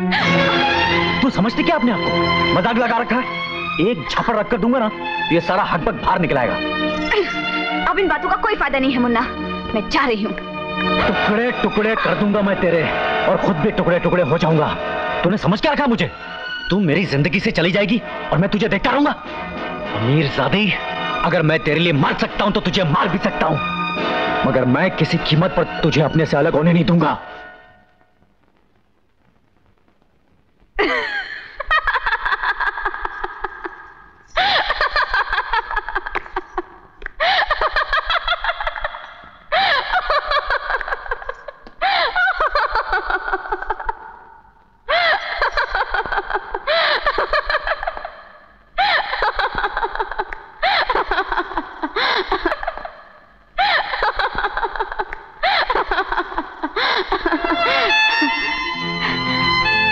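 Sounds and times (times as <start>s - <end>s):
woman laughing: 30.8s - 44.1s, 44.9s - 59.2s.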